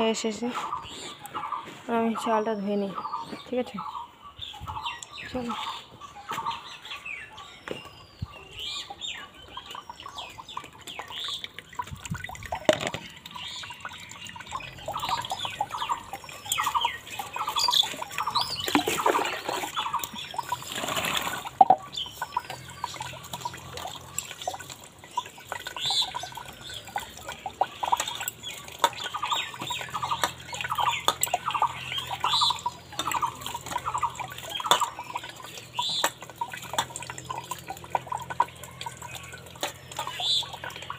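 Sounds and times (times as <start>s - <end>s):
birds chirping: 0.0s - 40.9s
water pouring into bowl: 9.4s - 40.9s
rice and water swishing: 15.1s - 21.6s.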